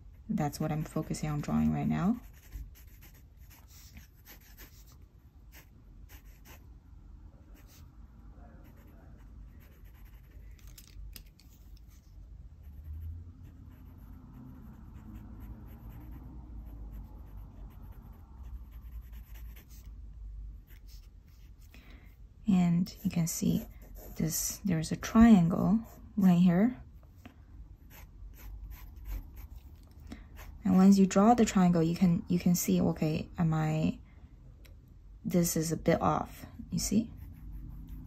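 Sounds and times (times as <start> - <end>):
pencil scratching on paper: 0.1 - 6.6, 8.6 - 10.6, 11.9 - 19.9, 20.6 - 21.7, 22.8 - 26.4, 27.9 - 31.0, 36.8 - 38.0.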